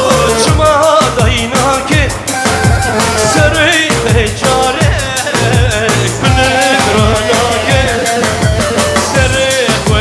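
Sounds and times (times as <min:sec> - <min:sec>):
steady drum beat: 0:00.0 - 0:10.0
wavering lead melody: 0:02.3 - 0:03.7, 0:06.2 - 0:09.3.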